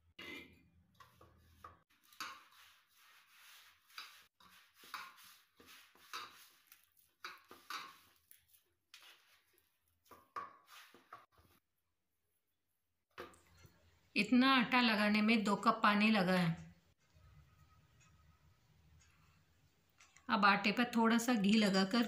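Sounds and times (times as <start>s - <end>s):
hand kneading dough in steel bowl: 1.0s - 11.7s.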